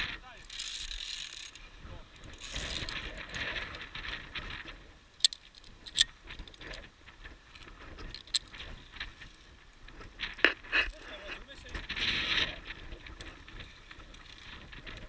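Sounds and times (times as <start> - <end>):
carabiners sliding on steel cable: 0.4 - 4.1, 5.2 - 6.9.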